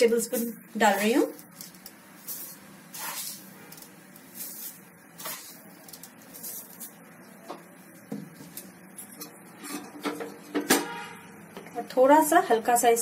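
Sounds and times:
sugar sprinkling rustles: 0.0 - 9.6
steady hiss: 0.2 - 8.8.

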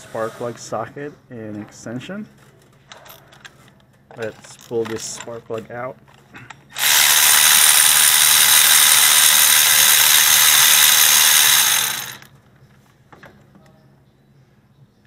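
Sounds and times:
cordless electric ratchet running: 6.7 - 12.3.

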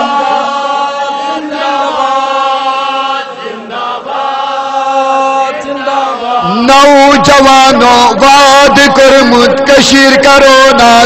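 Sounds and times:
slogan chanted in sung notes: 0.0 - 11.0.

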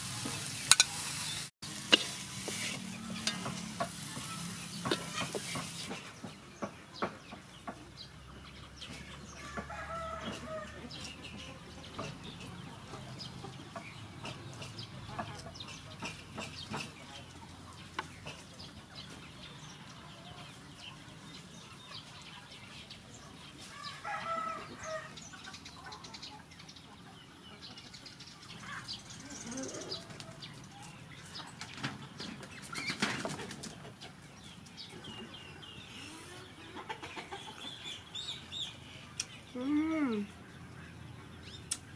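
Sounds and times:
chickens calling: 0.0 - 41.9.

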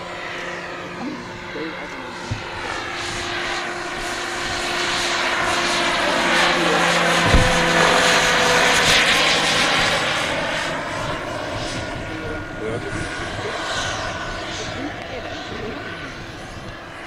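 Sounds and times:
model helicopter rotor noise: 0.0 - 17.0
low thump: 7.2 - 8.0.

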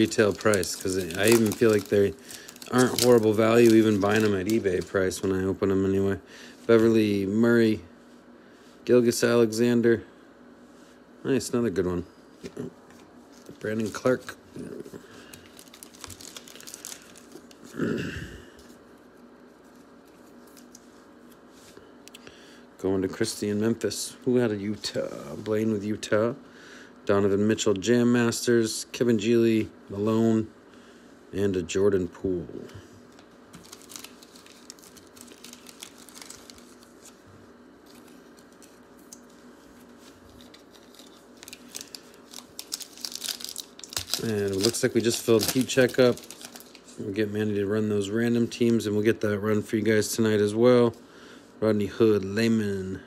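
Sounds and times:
cards being shuffled: 0.0 - 5.0, 37.8 - 47.0
foil wrappers crinkling: 0.0 - 7.3, 12.9 - 17.8, 33.1 - 47.3.

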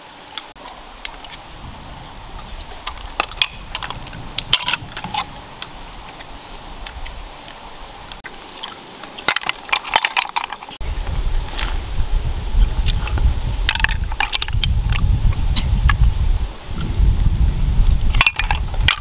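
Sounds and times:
snail shells clicking and knocking: 18.1 - 19.0.

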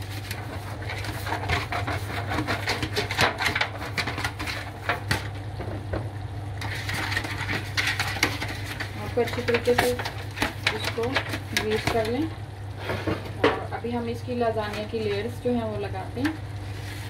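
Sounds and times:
brush crinkling on foil tray: 0.0 - 5.4, 6.6 - 12.2, 16.7 - 17.0
steady low hum: 0.0 - 17.0.

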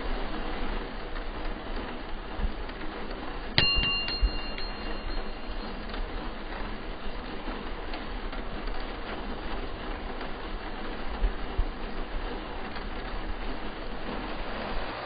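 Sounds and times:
bus engine rumbling: 0.0 - 15.0
low thumps: 3.6 - 9.1.

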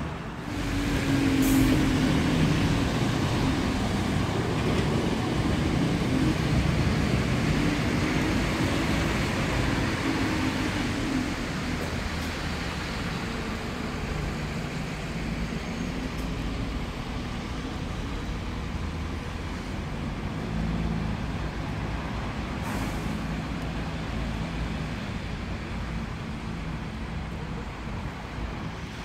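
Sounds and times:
bus diesel engine: 0.0 - 29.0
tyre hiss on wet road: 21.8 - 25.9.

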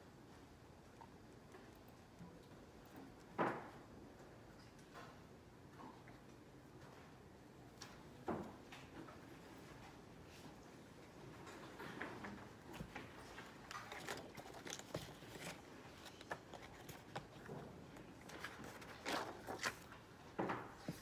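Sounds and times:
paper pages turning and rustling: 12.8 - 20.1.

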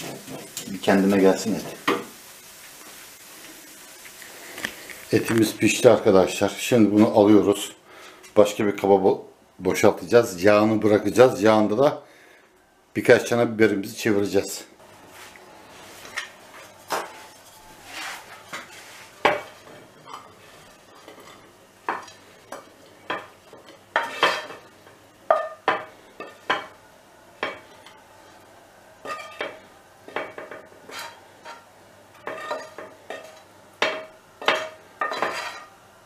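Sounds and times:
spoon scraping frying pan: 15.8 - 26.8, 29.0 - 35.8.

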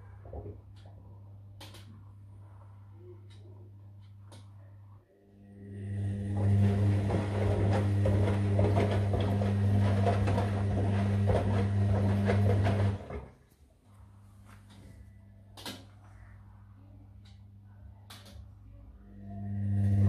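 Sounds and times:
washing machine motor humming: 5.4 - 13.4, 19.0 - 20.0
wet laundry sloshing: 6.4 - 13.4.

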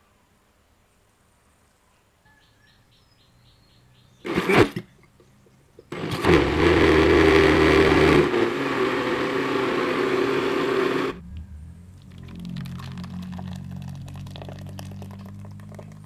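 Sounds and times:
blender motor running: 4.3 - 4.7, 5.9 - 11.2.

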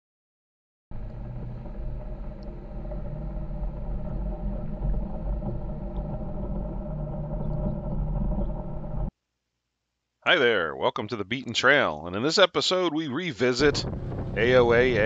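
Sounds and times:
vehicle engine rumbling: 0.9 - 9.1, 13.6 - 15.0.

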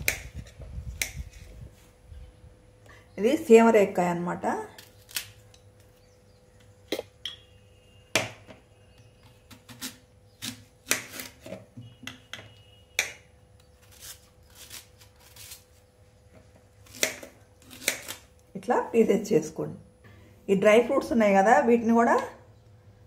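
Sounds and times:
knife scraping through fruit: 9.3 - 11.7, 13.7 - 15.8.

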